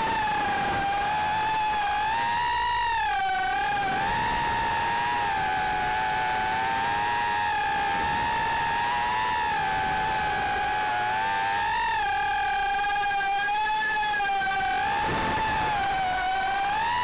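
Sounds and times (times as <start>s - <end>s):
quadcopter motors whining: 0.0s - 17.0s.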